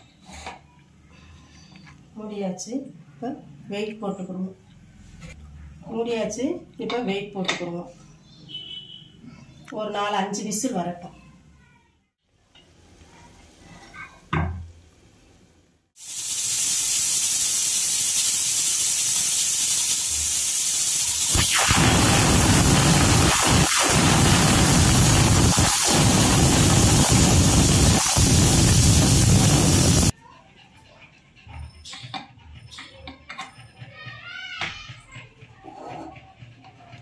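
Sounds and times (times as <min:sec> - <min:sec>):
pressure cooker steam hiss: 0:16.0 - 0:30.1.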